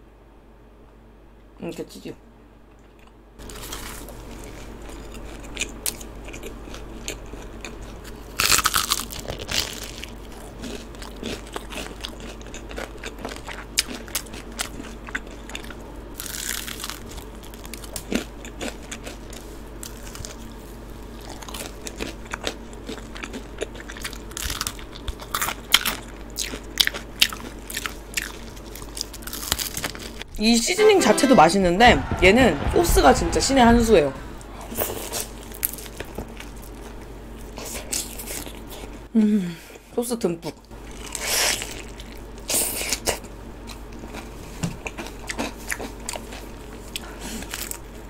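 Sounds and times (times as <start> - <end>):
crunching fried chicken: 3.0 - 30.3, 40.8 - 48.0.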